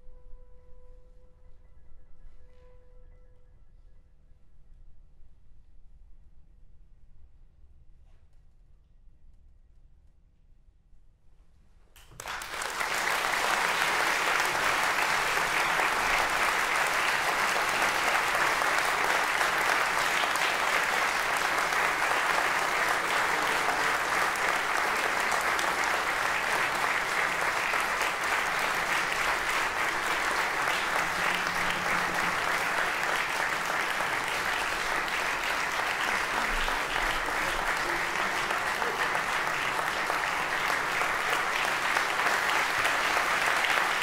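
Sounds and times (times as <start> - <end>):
audience applause: 12.0 - 44.0.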